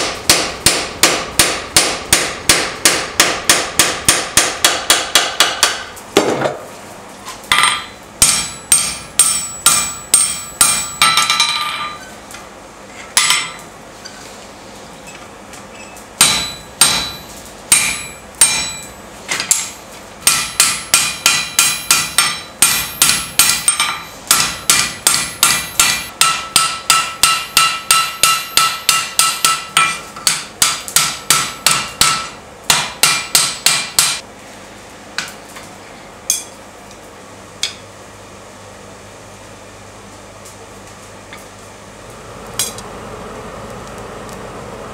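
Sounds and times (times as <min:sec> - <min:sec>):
hammer striking iron on anvil: 0:00.0 - 0:06.4, 0:07.5 - 0:12.1, 0:13.2 - 0:13.7, 0:16.2 - 0:34.2, 0:36.3 - 0:36.6.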